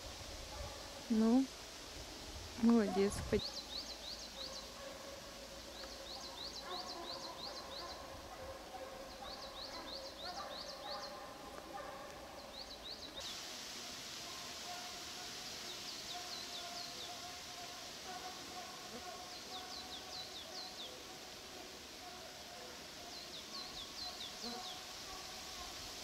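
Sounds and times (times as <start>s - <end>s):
steady high hiss: 0.0s - 26.0s
songbird chirping: 2.6s - 13.5s, 14.3s - 25.9s
distant hounds baying: 2.7s - 13.1s.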